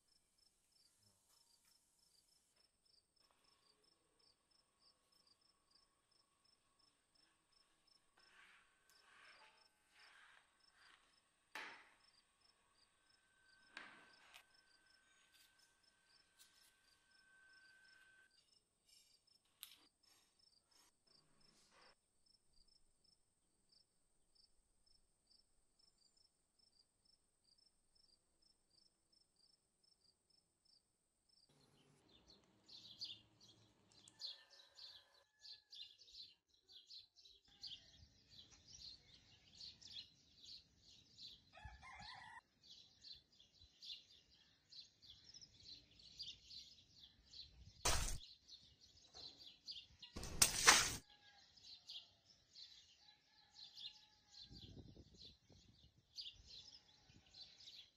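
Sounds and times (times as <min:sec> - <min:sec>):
small birds chirping: 0:24.4 - 0:42.4
water balloon bursting with splash: 0:47.9 - 0:48.2, 0:50.2 - 0:51.0.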